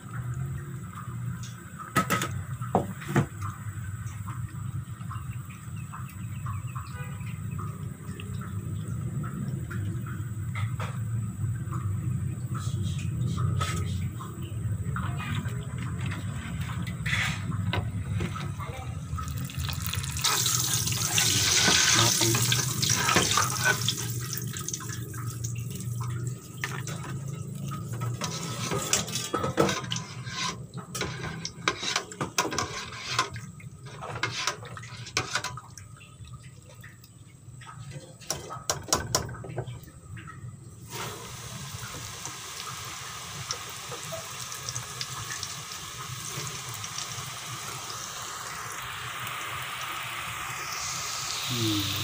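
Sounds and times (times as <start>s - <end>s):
dough sizzling in hot oil: 15.2s - 35.6s, 40.8s - 52.0s.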